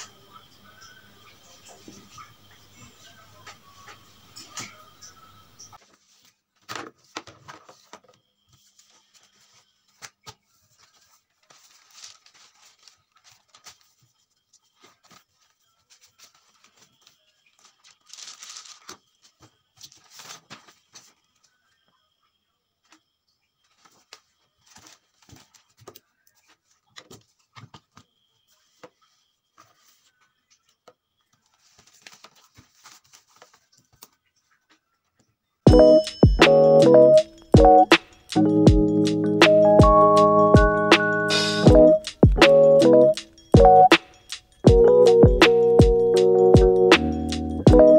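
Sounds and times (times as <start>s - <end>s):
paper pages rustling: 5.7s - 21.5s, 23.7s - 34.7s.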